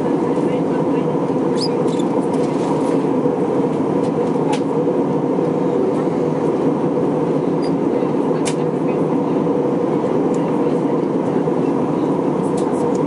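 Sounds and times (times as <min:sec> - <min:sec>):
air rushing along fuselage: 0:00.0 - 0:13.0
aircraft cabin engine drone: 0:00.0 - 0:13.0.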